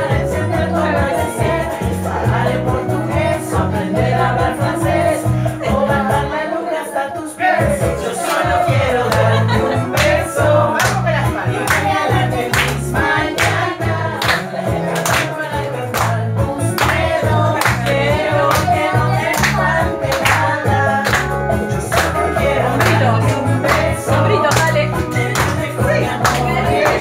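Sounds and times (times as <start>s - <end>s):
karaoke backing track: 0.0s - 27.0s
hand clapping: 9.1s - 27.0s.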